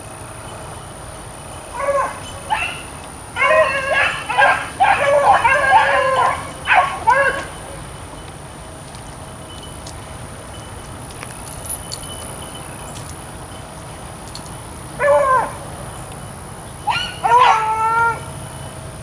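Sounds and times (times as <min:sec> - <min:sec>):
beagle baying: 0:01.7 - 0:07.9, 0:15.0 - 0:15.7, 0:16.8 - 0:18.4.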